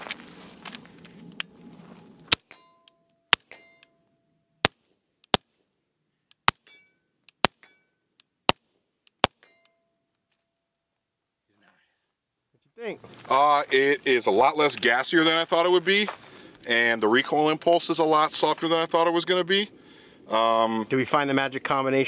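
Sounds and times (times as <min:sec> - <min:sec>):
ringing tones: 0:02.4 - 0:04.6.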